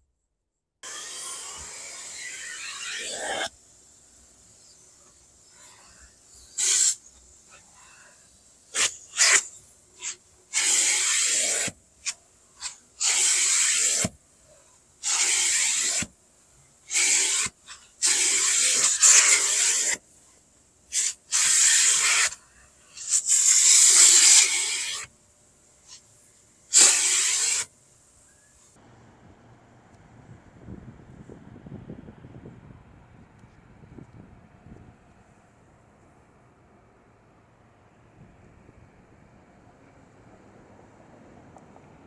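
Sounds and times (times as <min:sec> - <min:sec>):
vacuum hose sucking carpet: 0:00.8 - 0:03.5, 0:04.1 - 0:14.2, 0:15.0 - 0:16.1, 0:16.9 - 0:20.0, 0:20.9 - 0:22.4, 0:23.0 - 0:25.1, 0:26.7 - 0:27.7.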